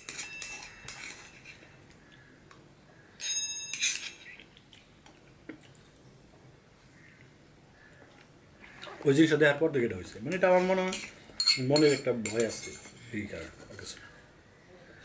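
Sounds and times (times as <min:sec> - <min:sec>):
spoon scraping metal bowl: 0:00.0 - 0:01.8, 0:03.2 - 0:04.4, 0:10.3 - 0:14.0.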